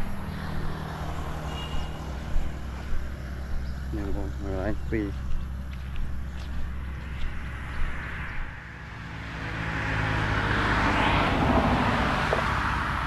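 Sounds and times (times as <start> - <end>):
vehicle passing on road: 0.0 - 13.0.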